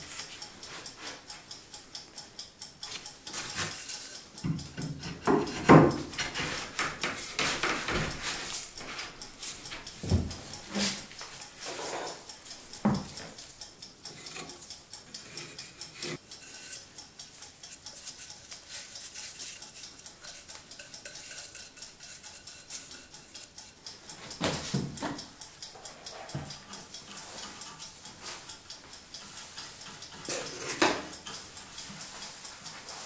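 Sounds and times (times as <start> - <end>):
wooden parts clicking and scraping: 3.3 - 12.2, 29.8 - 32.0.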